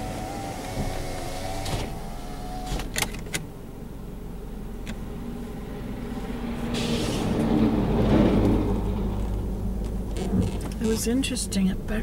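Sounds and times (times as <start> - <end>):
power windows whining: 0.0 - 3.4
car engine and tyres on rough road: 0.0 - 12.0
truck passing: 4.2 - 12.0.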